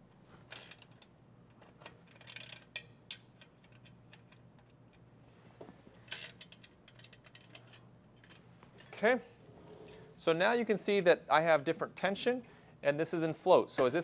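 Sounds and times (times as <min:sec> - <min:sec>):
wrench clicking: 0:02.1 - 0:04.8.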